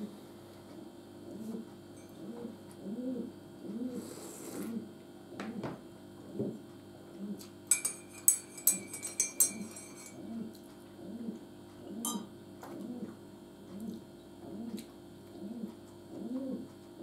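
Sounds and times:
spoon clinking in a mug: 7.7 - 10.2, 12.0 - 12.3.

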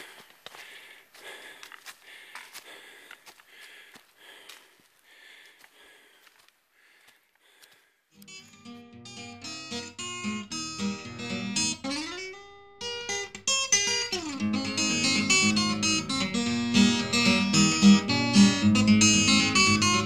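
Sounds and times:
plucked guitar music: 8.2 - 20.0.

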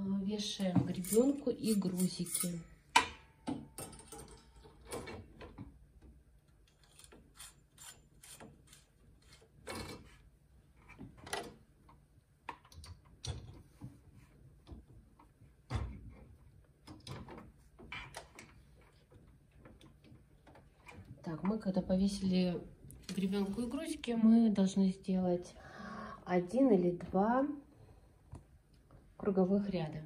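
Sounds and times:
clicks clinks and knocks of weights: 2.0 - 5.2.

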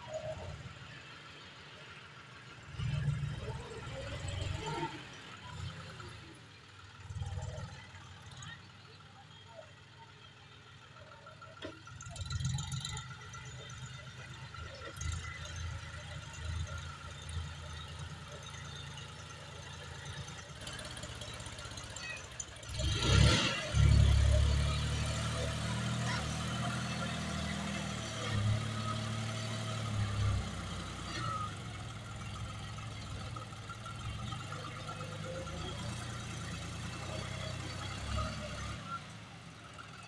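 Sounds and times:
tractor diesel engine running: 0.0 - 40.0.

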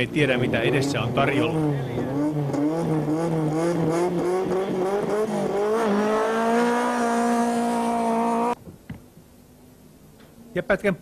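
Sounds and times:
rally car engine revving: 0.0 - 8.6.

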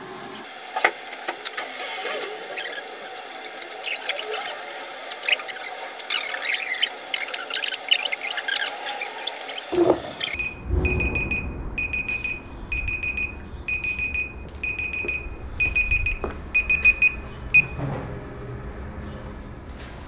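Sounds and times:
electronic timer alarm beeping: 10.2 - 17.8.

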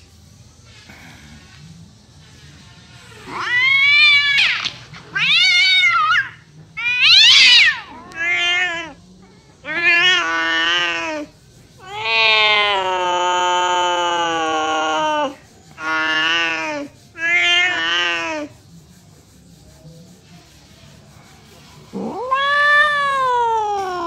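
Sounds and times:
cat yowling: 3.1 - 9.0, 9.6 - 18.5, 21.9 - 24.0.

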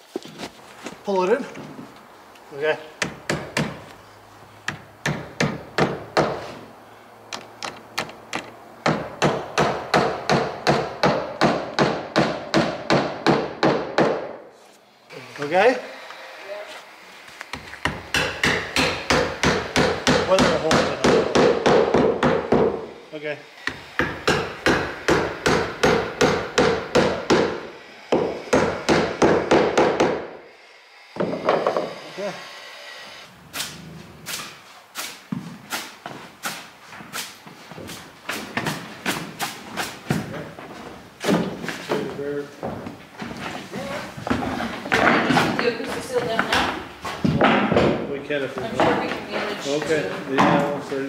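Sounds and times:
hammer driving nails into wood: 4.7 - 6.4, 17.5 - 22.8, 23.6 - 30.3, 31.2 - 31.9.

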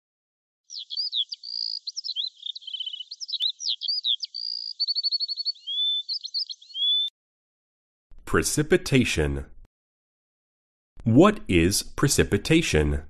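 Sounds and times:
songbird singing: 0.6 - 7.1.

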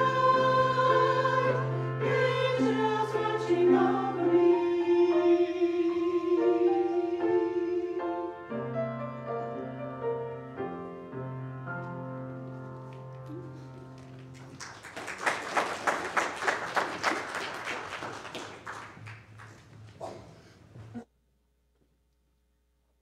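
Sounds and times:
congregation applauding: 12.9 - 20.4.

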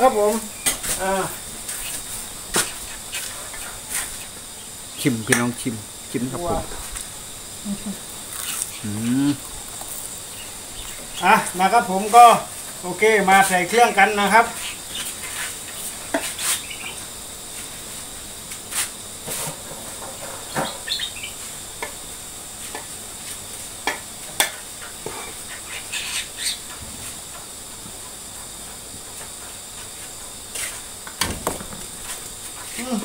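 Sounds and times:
background hiss: 0.0 - 33.0.

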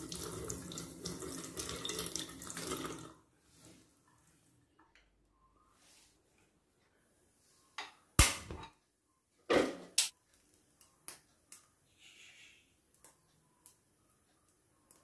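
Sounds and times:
oil trickling into pan: 0.0 - 3.1.

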